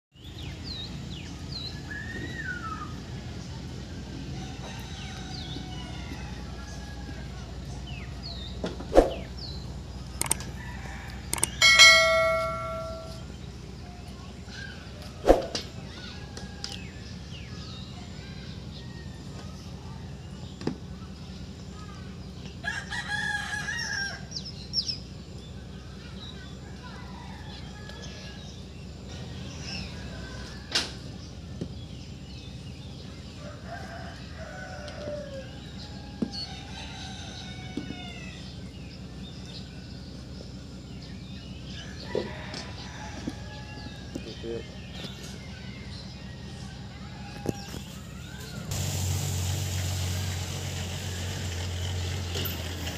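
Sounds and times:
birds chirping: 0.1s - 48.7s
rooster crowing: 4.3s - 7.6s, 10.4s - 13.2s, 22.6s - 24.4s, 26.8s - 28.4s, 33.4s - 38.4s, 41.8s - 44.2s
sharp clicks: 10.2s - 10.5s, 11.3s - 11.8s
bell ding: 11.6s - 13.3s.

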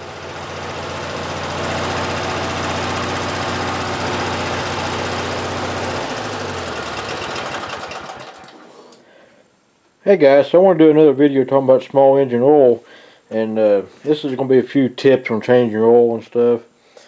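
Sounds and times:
lawn mower engine running: 0.0s - 9.0s.

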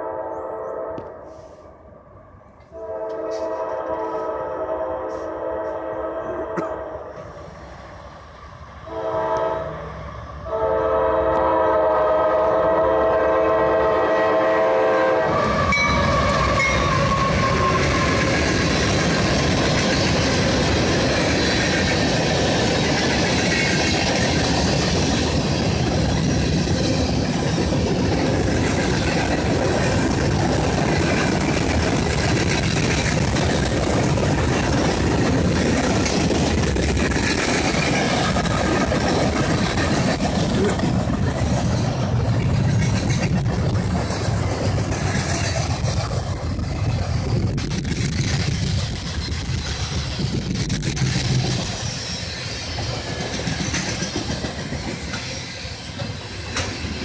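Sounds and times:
locomotive horn blasts: 0.0s - 1.5s, 2.7s - 7.1s, 8.9s - 9.8s, 10.5s - 18.1s
train wheels clickety-clack on rails: 2.6s - 4.3s, 5.0s - 7.7s, 10.5s - 57.0s.

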